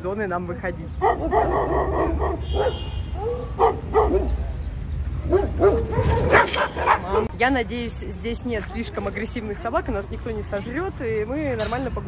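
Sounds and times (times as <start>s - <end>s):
dogs barking: 1.0s - 7.4s.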